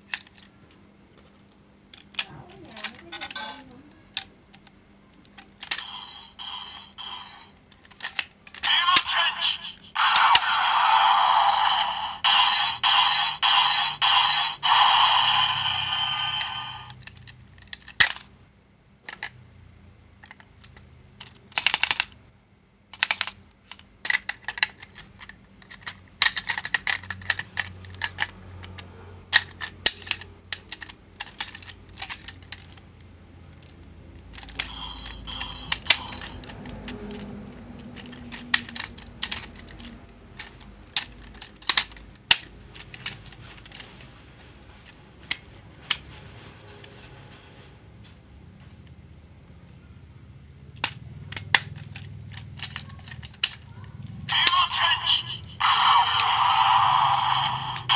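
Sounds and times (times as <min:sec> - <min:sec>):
plastic toy clicking and snapping: 0:00.1 - 0:00.8, 0:01.4 - 0:03.4, 0:04.1 - 0:09.4, 0:11.6 - 0:18.3, 0:19.0 - 0:19.4, 0:20.2 - 0:22.2, 0:22.9 - 0:44.2, 0:44.8 - 0:46.0, 0:50.7 - 0:55.0
electronic toy sound: 0:05.7 - 0:07.6, 0:08.6 - 0:17.0, 0:34.5 - 0:36.4, 0:54.3 - 0:57.9.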